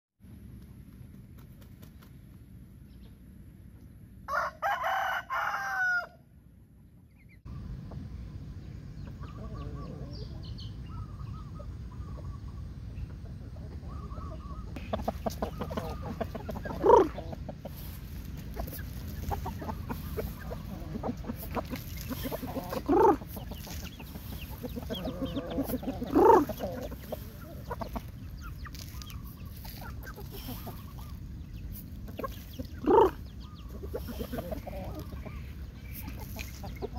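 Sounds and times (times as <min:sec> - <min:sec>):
rooster crowing: 0:04.3 - 0:06.3
steady background noise: 0:06.3 - 0:36.9
chickens clucking: 0:07.0 - 0:36.9.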